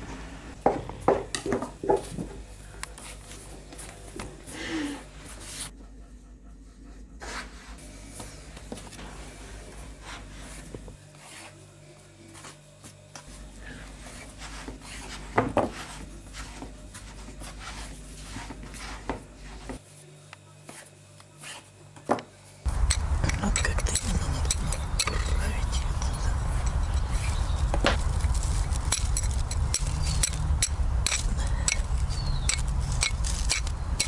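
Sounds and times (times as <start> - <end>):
firewood rubbing and scraping: 13.3 - 19.9, 22.6 - 34.0.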